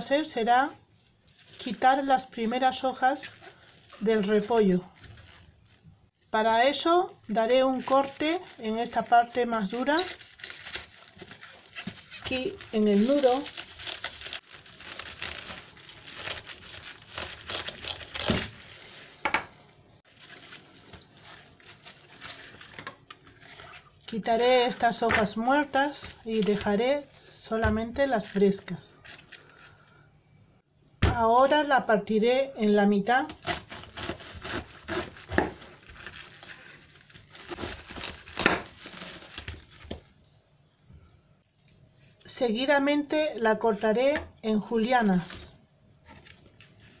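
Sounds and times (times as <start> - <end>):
cabbage leaves crackling and tearing: 1.1 - 19.2, 20.0 - 27.4, 33.3 - 40.2.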